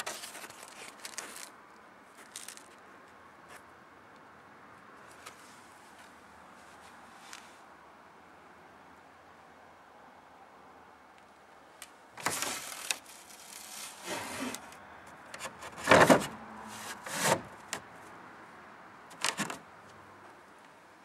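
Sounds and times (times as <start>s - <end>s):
wood scraping and knocking: 15.4s - 17.8s.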